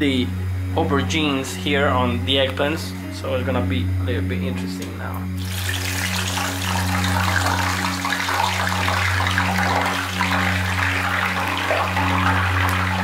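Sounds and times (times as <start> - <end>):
steady low hum: 0.0 - 13.0
vegetables frying in oil: 5.4 - 13.0.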